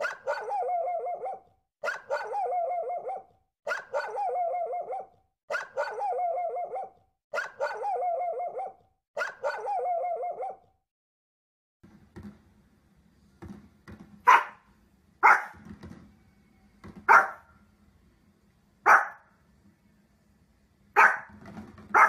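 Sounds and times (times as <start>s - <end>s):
dog barking: 0.0s - 10.7s, 14.3s - 14.6s, 15.2s - 15.6s, 17.1s - 17.5s, 18.9s - 19.3s, 21.0s - 21.3s.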